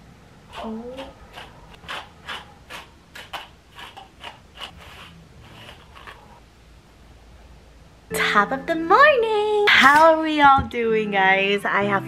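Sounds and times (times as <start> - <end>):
hairbrush swishing through hair: 3.3 - 6.4.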